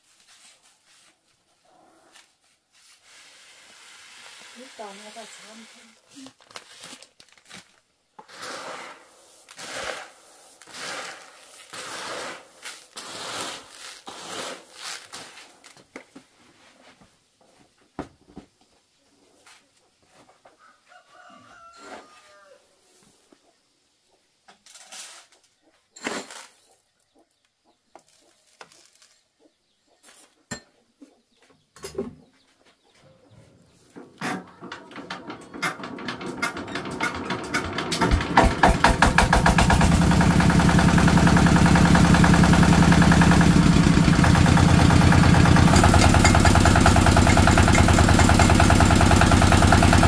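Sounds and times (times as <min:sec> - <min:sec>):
corn kernels rustling in basin: 0:02.1 - 0:15.7, 0:24.6 - 0:25.4, 0:26.0 - 0:26.8, 0:28.0 - 0:29.2
distant rooster crowing: 0:20.6 - 0:22.8
knocks and clicks: 0:34.0 - 0:40.3.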